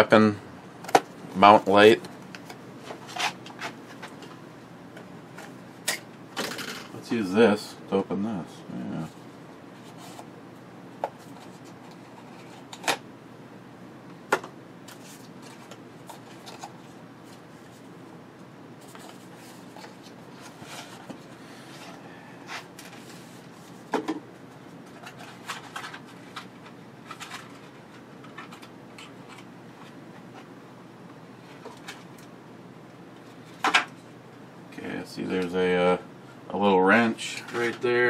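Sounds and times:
cardboard rustling and scraping: 2.8s - 4.2s, 9.1s - 10.3s, 18.8s - 24.0s.

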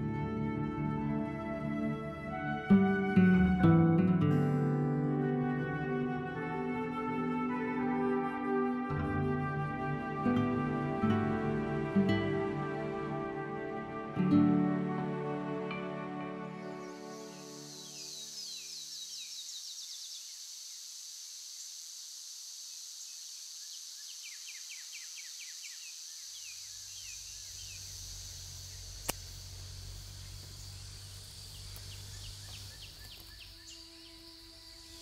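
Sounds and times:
high insect drone: 16.5s - 35.0s
bird trilling: 26.6s - 35.0s
sharp click: 29.0s - 29.4s.

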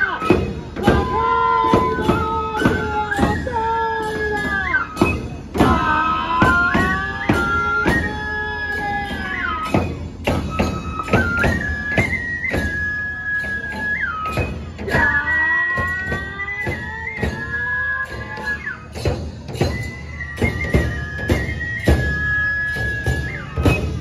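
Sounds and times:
bamboo flutes playing melody: 0.0s - 24.0s
taiko drum strikes: 0.2s - 12.4s.

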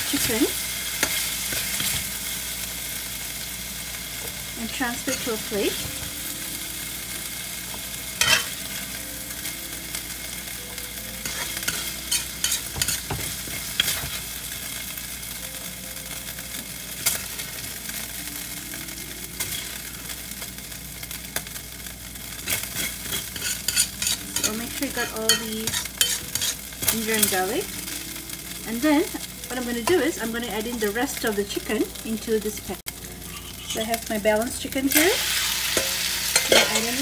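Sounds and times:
oil sizzling in a wok: 0.0s - 37.0s
spatula scraping a pan: 8.2s - 8.5s, 11.2s - 14.2s, 22.4s - 27.4s, 33.2s - 33.9s, 35.3s - 37.0s.

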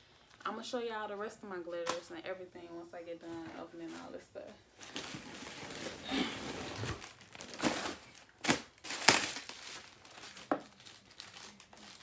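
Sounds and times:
plastic packaging crinkling: 4.8s - 12.0s.

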